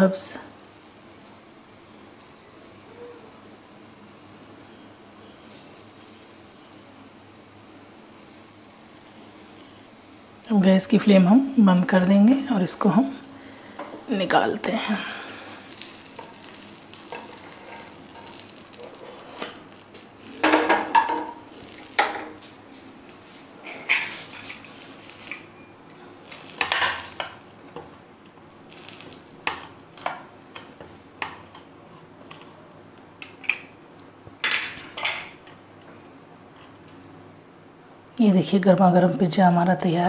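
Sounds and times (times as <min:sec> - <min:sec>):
spatula scraping a pan: 0:15.8 - 0:21.4.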